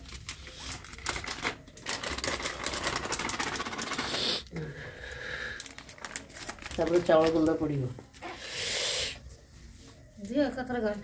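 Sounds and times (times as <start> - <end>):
plastic packet crinkling: 0.0 - 4.5, 5.4 - 8.2.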